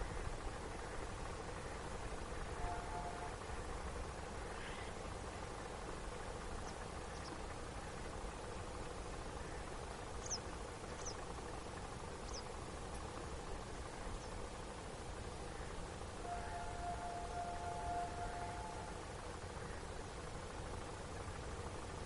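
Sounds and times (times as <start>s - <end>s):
outdoor background noise: 0.0s - 22.0s
small bird chirps: 10.2s - 11.2s, 12.2s - 12.5s.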